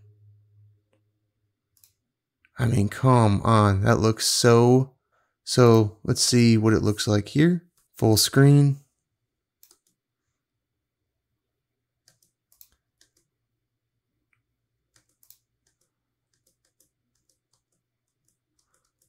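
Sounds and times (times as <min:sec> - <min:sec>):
computer mouse clicks: 0:01.7 - 0:02.0, 0:09.6 - 0:10.0, 0:12.0 - 0:13.3, 0:14.3 - 0:19.0.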